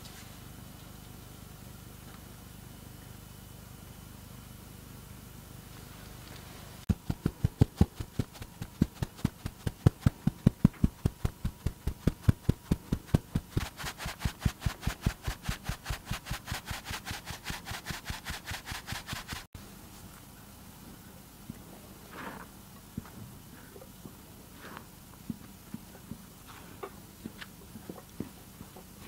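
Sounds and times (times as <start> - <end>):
flour sifting hiss: 5.8 - 19.5.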